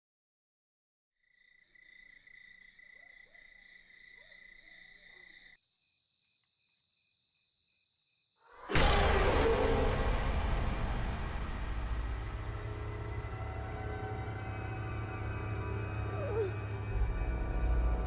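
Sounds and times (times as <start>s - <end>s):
crickets chirping: 1.2s - 8.7s, 12.3s - 18.0s
quieter insect chorus: 1.2s - 9.8s, 11.8s - 18.0s
loud rush of noise: 8.7s - 14.3s.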